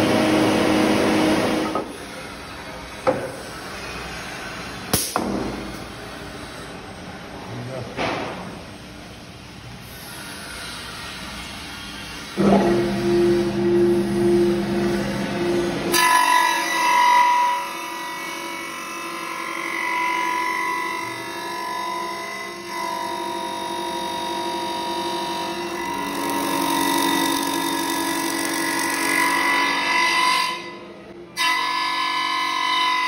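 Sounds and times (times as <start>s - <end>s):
woodworking machine motors whining: 10.6s - 30.8s.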